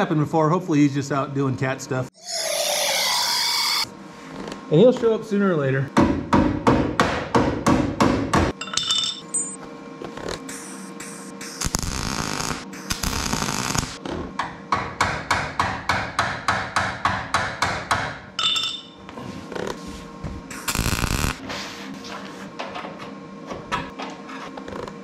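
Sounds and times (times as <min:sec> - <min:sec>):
welder crackling: 0:11.4 - 0:14.0, 0:20.5 - 0:21.4.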